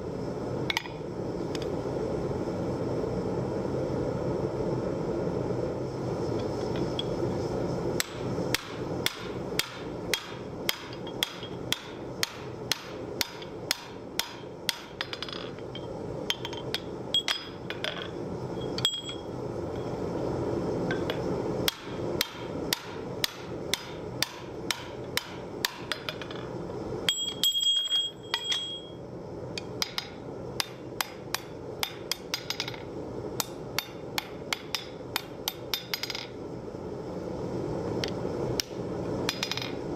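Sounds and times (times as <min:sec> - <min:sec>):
hammer striking steel on anvil: 0:08.0 - 0:15.2, 0:21.7 - 0:26.0
clear high ring: 0:18.5 - 0:19.9, 0:27.1 - 0:29.0.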